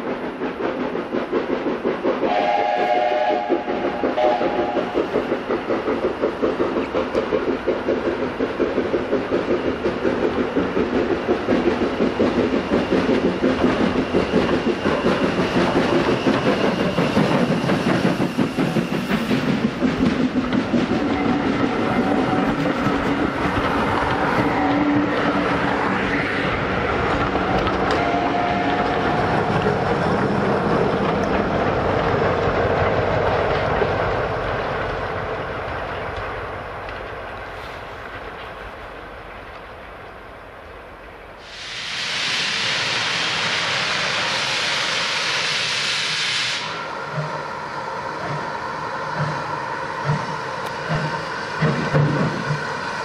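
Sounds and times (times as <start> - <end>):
train wheels clattering over rails: 0.0 - 40.5, 46.6 - 53.0
steam locomotive chuffing: 0.0 - 53.0.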